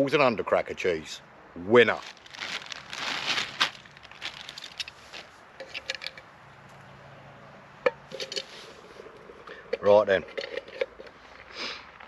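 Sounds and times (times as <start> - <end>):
rustling: 1.8 - 6.8, 8.1 - 12.0
metal pans clicking and tapping: 9.5 - 11.2.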